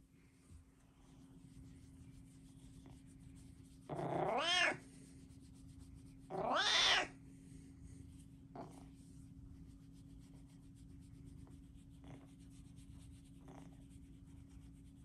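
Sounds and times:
cat meowing: 4.1 - 4.8, 6.3 - 7.1.

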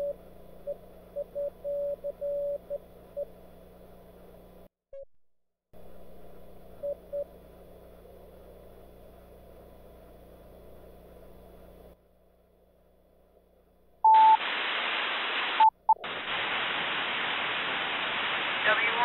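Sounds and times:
morse code tone: 1.2 - 2.8, 14.1 - 14.4
receiver hiss: 14.0 - 19.0.

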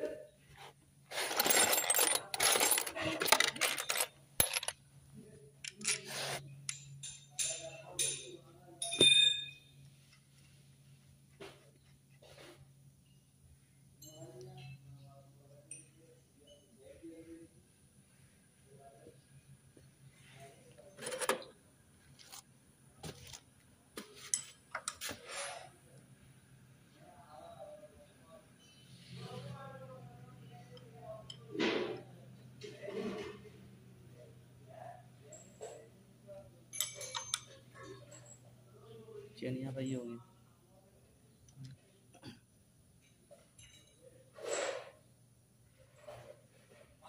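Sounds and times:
metal scrape: 1.1 - 4.0, 5.8 - 6.5, 25.0 - 25.7, 44.4 - 45.0
metal parts clinking and rattling: 1.1 - 4.8, 5.6 - 9.6, 20.9 - 21.5, 36.7 - 38.4, 43.0 - 44.8.

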